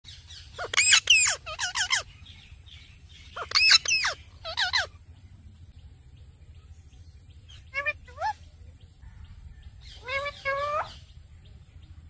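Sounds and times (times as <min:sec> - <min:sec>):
parakeet calling: 0:00.1 - 0:05.0, 0:07.5 - 0:08.4, 0:09.8 - 0:11.2.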